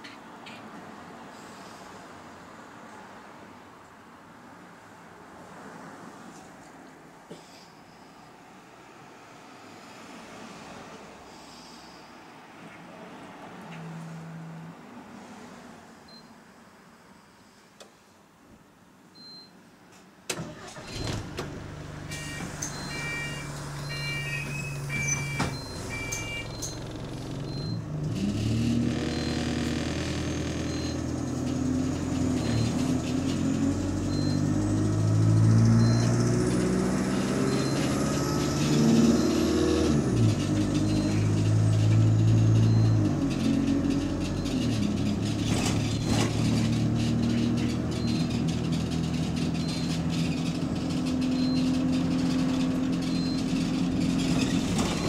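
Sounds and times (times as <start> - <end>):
bus diesel engine: 20.4 - 55.0
short electronic beeps: 22.1 - 26.9, 27.5 - 27.9, 29.1 - 29.5, 30.7 - 31.1, 34.1 - 34.5, 35.8 - 36.2, 37.4 - 38.0, 40.9 - 41.2, 42.6 - 43.0, 51.3 - 51.8, 53.1 - 53.5.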